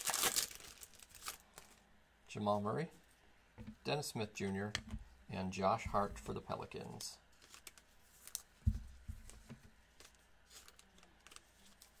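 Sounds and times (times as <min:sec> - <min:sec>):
wrapper crinkling and rustling: 0:00.0 - 0:01.8, 0:07.3 - 0:08.6, 0:09.3 - 0:12.0.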